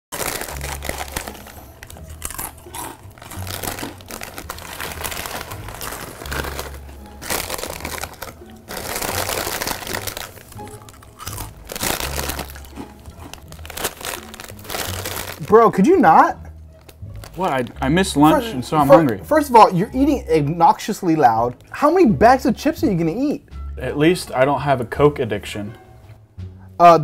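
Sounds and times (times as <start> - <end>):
man chewing loudly: 0.1 - 15.4
chips crunching: 0.1 - 15.8
plastic bag crinkling: 0.1 - 15.8
low background music: 0.1 - 27.0.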